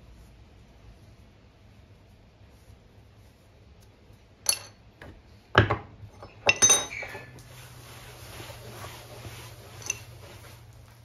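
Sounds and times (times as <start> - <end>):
cloth rag wiping bench: 0.0 - 4.2, 7.0 - 11.0
metal hand tools clinking: 4.4 - 4.8, 6.1 - 7.4, 9.8 - 10.2.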